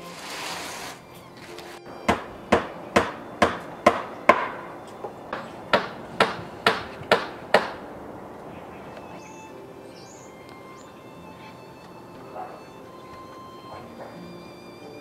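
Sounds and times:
hammer blows on roof: 0:02.1 - 0:07.9.

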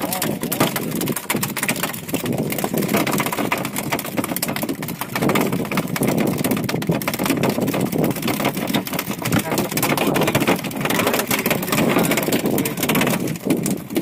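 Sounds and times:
rough rumbling aboard boat: 0:00.0 - 0:14.0.

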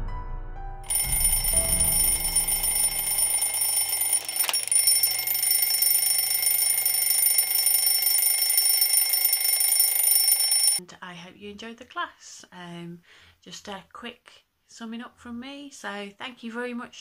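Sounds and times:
alarm clock ringing: 0:00.9 - 0:10.8.

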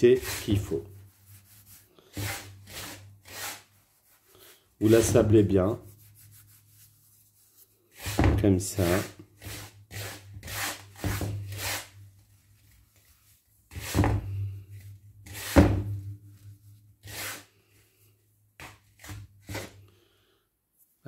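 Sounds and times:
hands rubbing gritty semolina: 0:00.2 - 0:15.4.

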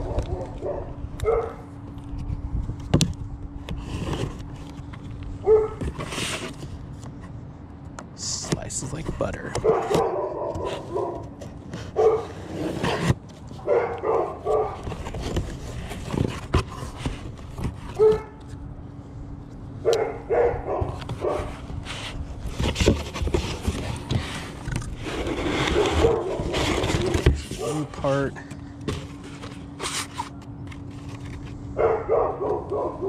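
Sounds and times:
dog barking: 0:00.0 - 0:01.7, 0:05.4 - 0:05.8, 0:09.6 - 0:11.2, 0:12.0 - 0:12.4, 0:13.6 - 0:14.8, 0:18.0 - 0:18.4, 0:19.8 - 0:21.5, 0:25.7 - 0:27.8, 0:31.8 - 0:33.0
steady low hum: 0:00.0 - 0:33.0
cardboard box scraping and rustling: 0:03.7 - 0:07.4, 0:08.4 - 0:13.7, 0:14.4 - 0:18.4, 0:20.8 - 0:31.6.

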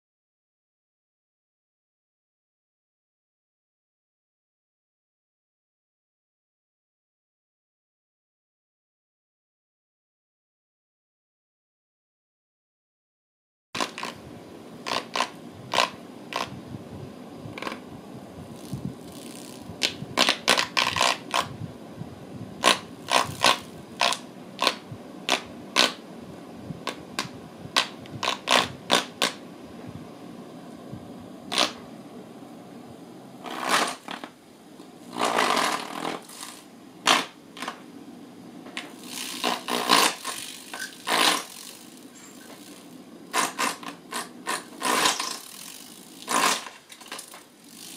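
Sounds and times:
steady hum: 0:13.8 - 0:47.9.

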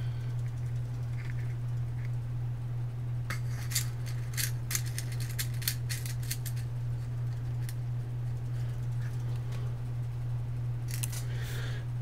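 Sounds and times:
low electrical hum: 0:00.0 - 0:12.0
small parts clicking and rattling: 0:03.3 - 0:06.7, 0:10.9 - 0:11.3.

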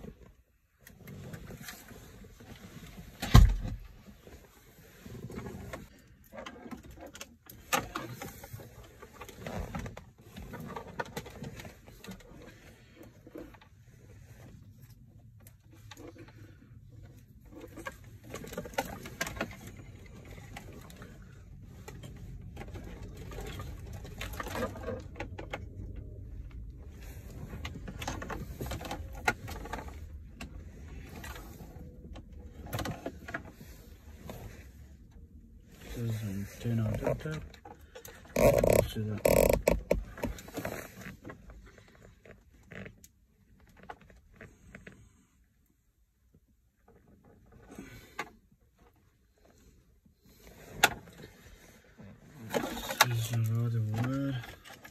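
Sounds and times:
hands working in dashboard: 0:02.4 - 0:41.9
low steady rumble: 0:11.3 - 0:54.9.

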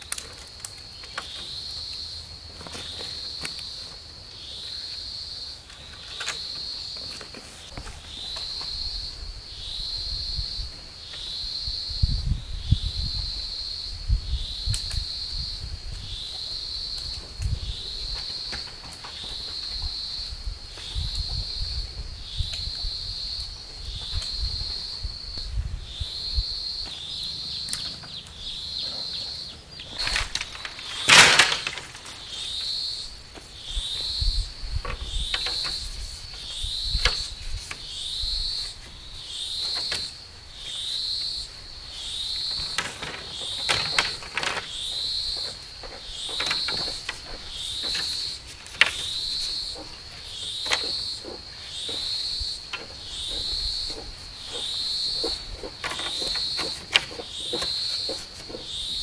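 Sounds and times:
bamboo poles knocking: 0:30.0 - 0:32.5, 0:42.6 - 0:50.0, 0:50.6 - 0:58.8.

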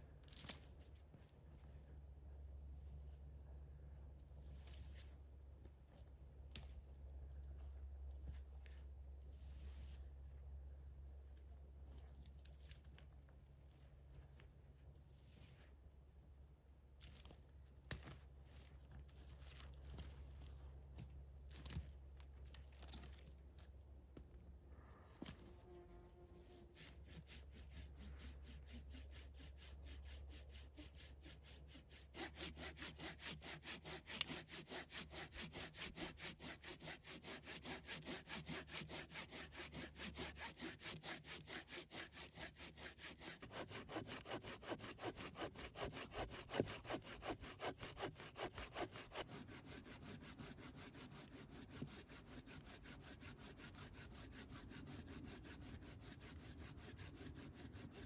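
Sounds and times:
hand saw cutting wood: 0:26.4 - 0:58.0.

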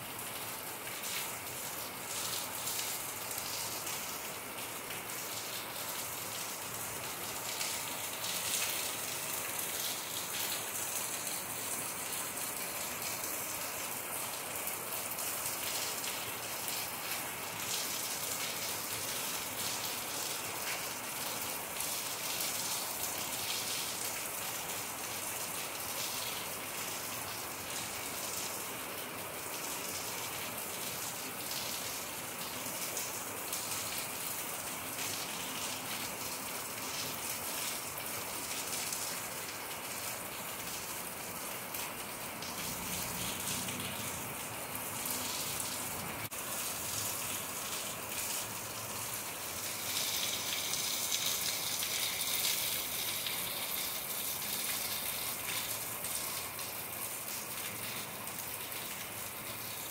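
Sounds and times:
steady rain falling: 0:00.0 - 0:59.9.

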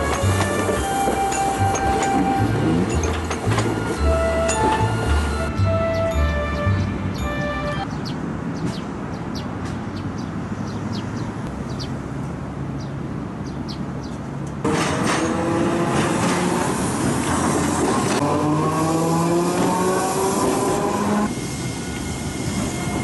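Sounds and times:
streetcar motor whining: 0:00.0 - 0:07.6, 0:14.6 - 0:23.0
street and river ambience: 0:00.0 - 0:23.0
streetcar wheels on rails: 0:00.0 - 0:23.0.

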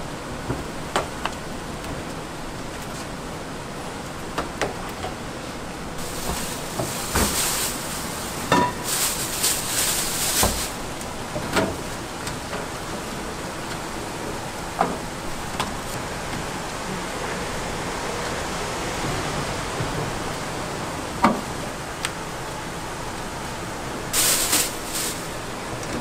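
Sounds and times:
steady hiss: 0:05.7 - 0:11.3, 0:23.3 - 0:26.0
rustling hiss: 0:06.0 - 0:11.2, 0:24.1 - 0:25.8.

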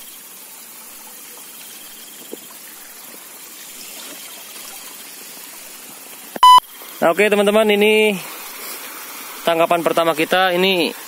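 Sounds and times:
insects trilling: 0:00.0 - 0:06.4
trickling water: 0:00.0 - 0:11.0.

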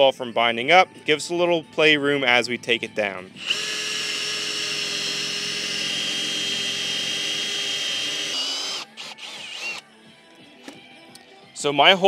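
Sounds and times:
power drill motor whine: 0:03.4 - 0:09.8.

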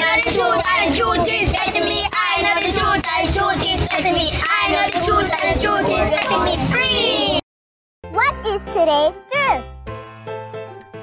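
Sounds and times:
children singing in unison: 0:00.0 - 0:07.4.

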